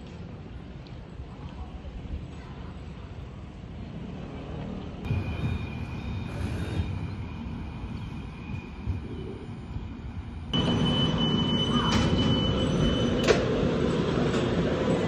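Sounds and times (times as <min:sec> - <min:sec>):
low street rumble: 0:00.0 - 0:15.0
tram approaching on track: 0:00.0 - 0:15.0
short beeps: 0:10.6 - 0:13.7.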